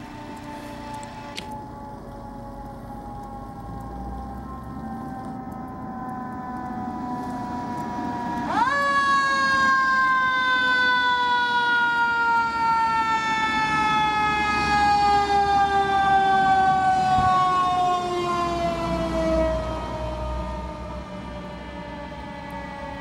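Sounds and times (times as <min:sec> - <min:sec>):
fire engine siren: 0:00.0 - 0:23.0
truck engine rumble: 0:00.0 - 0:23.0.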